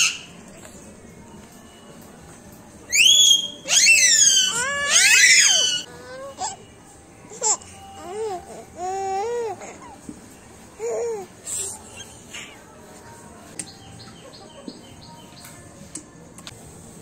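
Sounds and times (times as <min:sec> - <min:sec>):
toddler squealing: 0:02.9 - 0:06.6
toddler babbling: 0:07.3 - 0:10.0.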